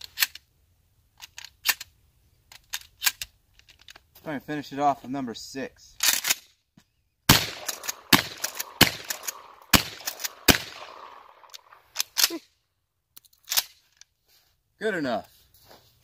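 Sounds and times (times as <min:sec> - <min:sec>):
shotgun shots echoing: 0:07.3 - 0:12.1
metallic action clicks: 0:07.3 - 0:12.4.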